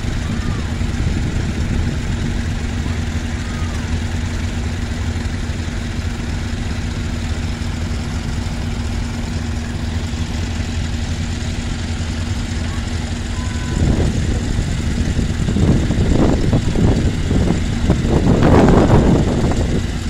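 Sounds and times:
tractor engines idling: 0.0 - 20.0.

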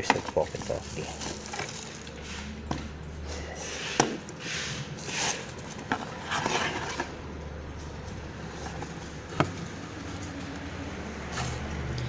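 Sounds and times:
packaging rustling and crinkling: 0.0 - 2.5.

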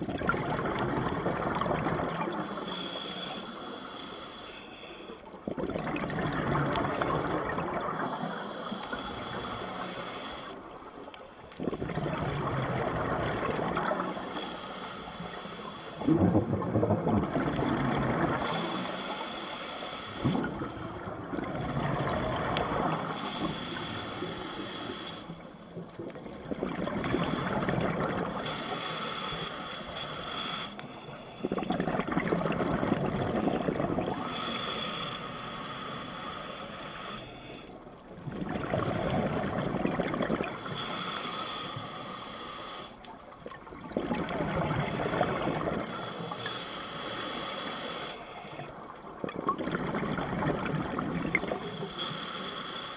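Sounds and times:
exhaled bubbles underwater: 0.0 - 2.7, 5.4 - 9.7, 11.5 - 14.3, 16.0 - 19.0, 20.2 - 24.4, 25.3 - 28.6, 31.4 - 34.3, 38.1 - 40.8, 43.4 - 46.5, 48.8 - 51.8
regulator inhalation hiss: 2.1 - 5.2, 8.0 - 10.6, 13.7 - 16.0, 18.4 - 20.3, 22.9 - 25.5, 28.3 - 31.5, 34.2 - 37.7, 40.6 - 43.1, 45.9 - 48.7, 51.4 - 52.9.

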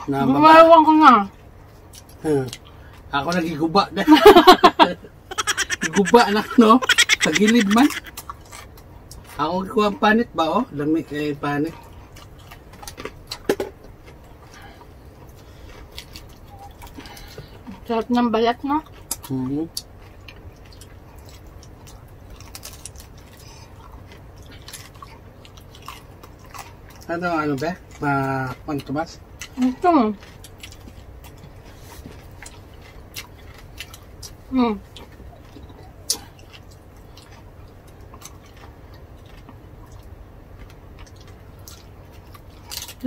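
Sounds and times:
steady low hum: 1.2 - 43.0
chewing and biting: 1.6 - 3.6, 5.3 - 9.7, 11.1 - 17.9, 18.7 - 43.0
mouth clicks and smacks: 5.3 - 9.2
crisp crunches of pork skin: 18.9 - 29.6, 35.9 - 43.0.

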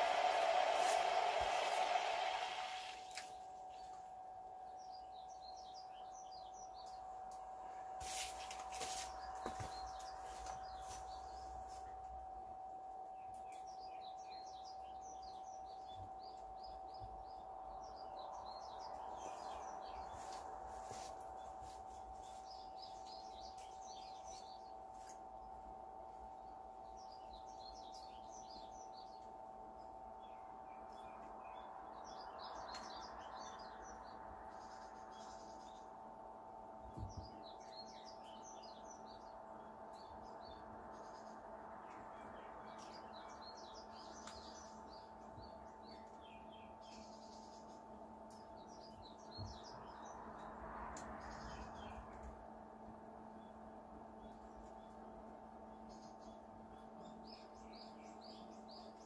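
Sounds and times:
soft rushing noise: 0.0 - 3.4, 17.3 - 23.8
electric pump hum: 0.0 - 3.6
small birds chirping: 4.6 - 12.1, 13.0 - 36.0, 36.8 - 59.0.

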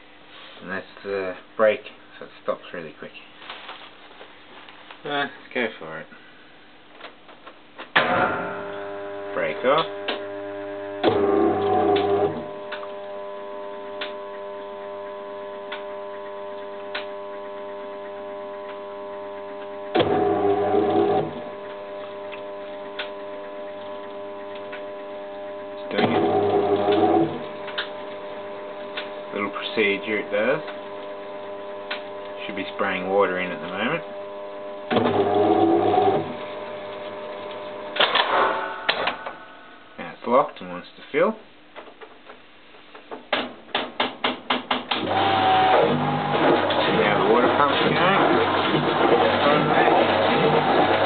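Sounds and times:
electrical hum: 0.0 - 43.4, 44.3 - 51.0
loud machine sound: 25.8 - 34.2, 44.9 - 51.0
mechanical clunks and clicks: 25.9 - 28.2, 37.4 - 39.4, 43.0 - 49.4.

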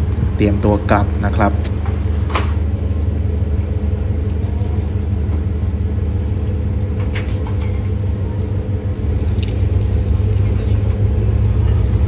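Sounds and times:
diesel engine idling: 0.0 - 12.0.

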